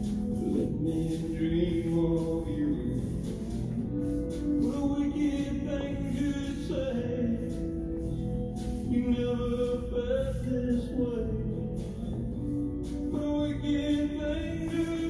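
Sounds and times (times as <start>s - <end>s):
slow rumba song: 0.0s - 15.0s
person singing long notes: 0.3s - 8.1s.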